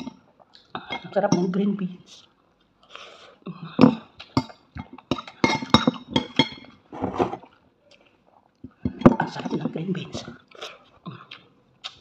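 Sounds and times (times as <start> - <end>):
cutlery clinking on ceramic plate: 3.8 - 6.8.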